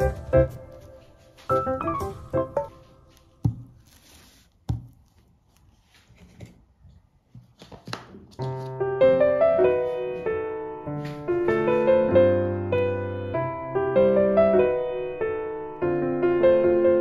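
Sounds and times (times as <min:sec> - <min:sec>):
soft piano music: 0:00.0 - 0:03.5, 0:08.4 - 0:17.0.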